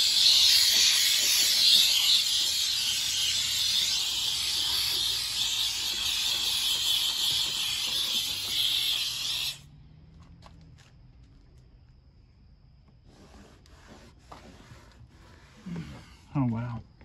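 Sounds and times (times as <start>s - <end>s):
steam cleaner hissing: 0.0s - 9.6s.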